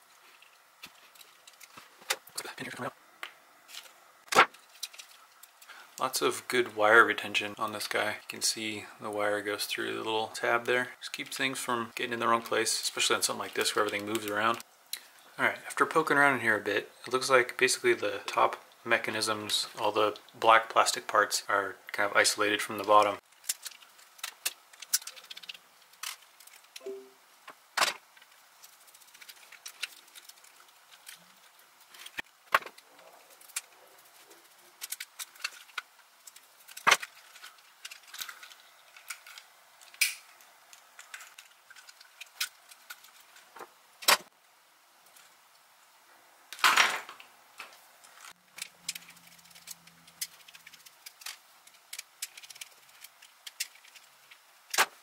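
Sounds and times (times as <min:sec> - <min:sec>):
plastic parts clicking and rattling: 0:00.2 - 0:02.3, 0:03.7 - 0:06.1, 0:22.8 - 0:26.8, 0:27.5 - 0:44.2, 0:46.5 - 0:55.0.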